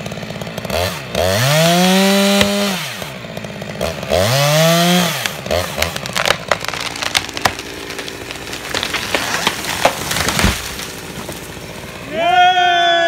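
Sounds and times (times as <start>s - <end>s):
tree trunk cracking and splintering: 0.0s - 12.2s
branches breaking: 0.6s - 2.7s, 3.8s - 12.1s
tree trunk thudding on ground: 5.2s - 11.7s.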